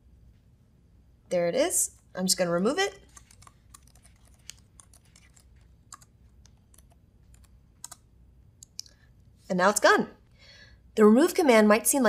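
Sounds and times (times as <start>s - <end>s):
typing on computer keyboard: 3.1s - 8.0s.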